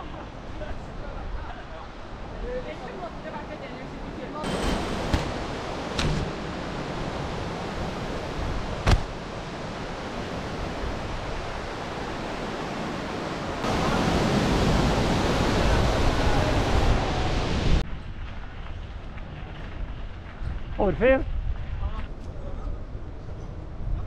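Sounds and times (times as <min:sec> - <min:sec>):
river rapids rushing: 0:04.3 - 0:17.8
sharp knock: 0:06.0 - 0:06.3.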